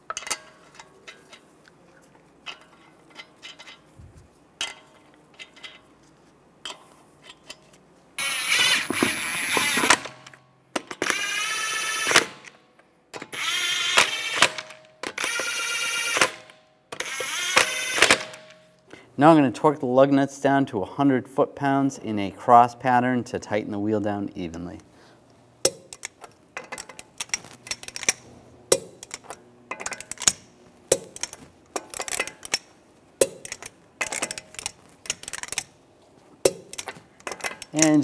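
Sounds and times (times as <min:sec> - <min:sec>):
impact wrench bursts: 0:08.2 - 0:12.6, 0:13.2 - 0:18.6
lug nuts clicking: 0:25.7 - 0:35.7.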